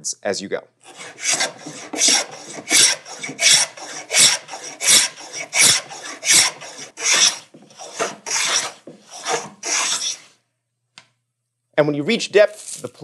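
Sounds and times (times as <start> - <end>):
hand plane rasping along wood: 0.9 - 10.3.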